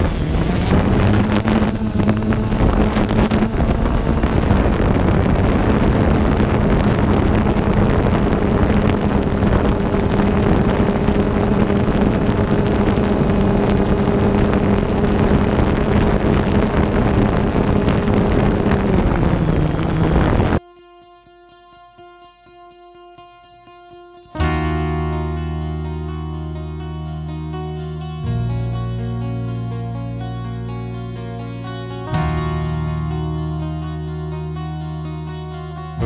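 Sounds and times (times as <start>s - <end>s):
drone propellers humming: 0.0s - 20.6s
wind rushing over microphone: 0.0s - 20.6s.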